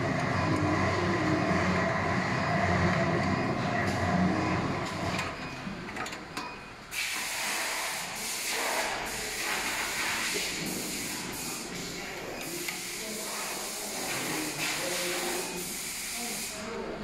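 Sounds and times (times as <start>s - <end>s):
compressed air hissing: 6.9s - 16.7s.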